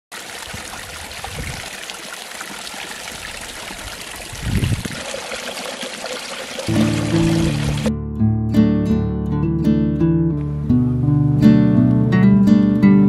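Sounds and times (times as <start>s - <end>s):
stream trickling over rocks: 0.1s - 7.9s
water pouring from a pipe: 0.1s - 7.9s.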